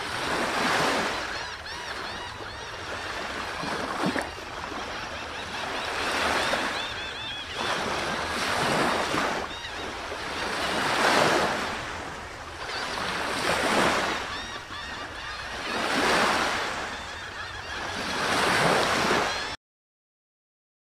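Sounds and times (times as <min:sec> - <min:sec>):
waves washing in: 0:05.8 - 0:14.5.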